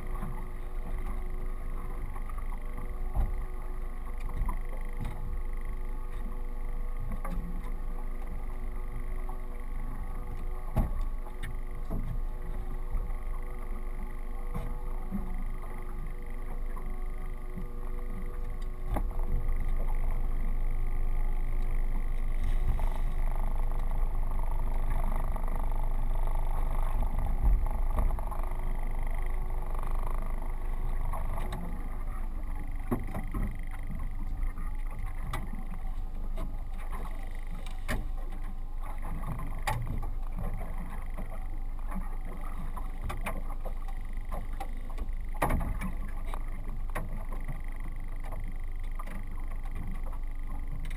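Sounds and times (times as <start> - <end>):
outboard motor running: 0.0 - 50.9
sharp clicks and knocks: 41.9 - 50.9.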